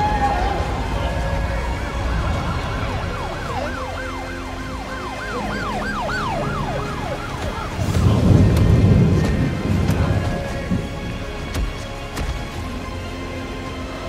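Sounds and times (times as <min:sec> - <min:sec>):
siren-like rising and falling tone: 0:00.0 - 0:08.8
deep rumble: 0:00.0 - 0:14.0
low steady drone: 0:00.0 - 0:14.0.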